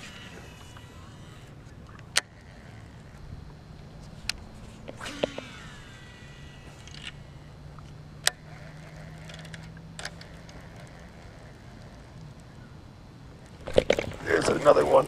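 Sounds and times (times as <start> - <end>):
fishing reel clicks: 0.0 - 3.2, 4.3 - 12.6
fishing reel spool whirring: 0.0 - 15.0.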